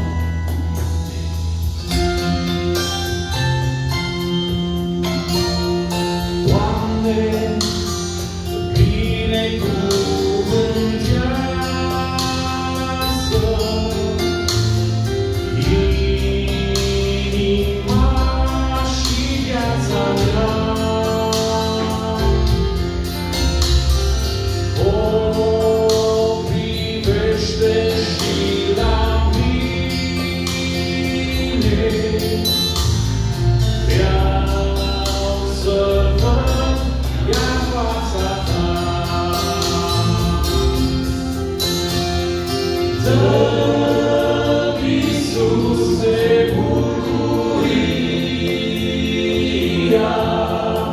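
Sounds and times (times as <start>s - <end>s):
instrumental accompaniment: 0.0s - 50.9s
male vocal quartet singing: 5.0s - 50.9s.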